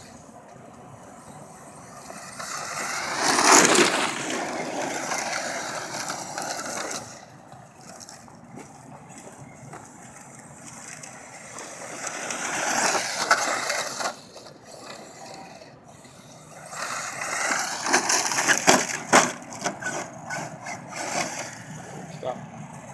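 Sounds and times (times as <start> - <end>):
rc truck motor whine: 0.0 - 22.9
tyres grinding on dirt: 0.0 - 22.9.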